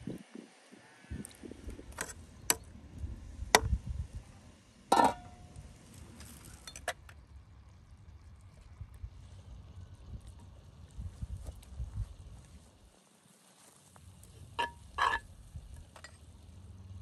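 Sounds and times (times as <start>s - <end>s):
metal ladle clinking on pot: 4.9s - 5.3s, 14.6s - 15.2s
metal lid clanking on pot: 4.9s - 5.4s, 14.6s - 15.2s.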